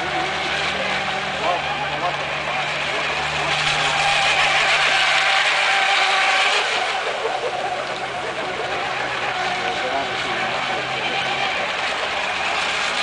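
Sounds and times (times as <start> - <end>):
high-pitched motor whine: 0.0 - 13.0.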